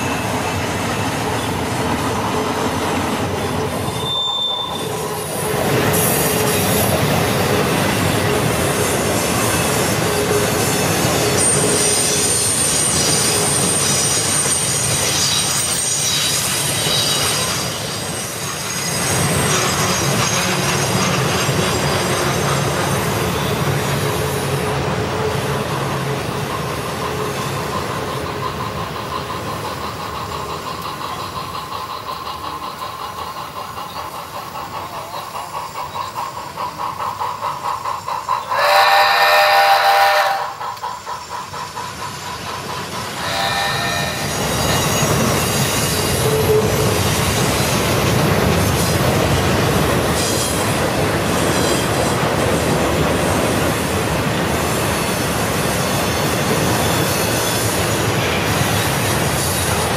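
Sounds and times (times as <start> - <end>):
model train rolling clatter: 1.3 - 59.9
wheels squealing on curves: 3.8 - 6.4
model locomotive whistle: 3.9 - 5.2, 38.4 - 40.9, 43.2 - 44.7.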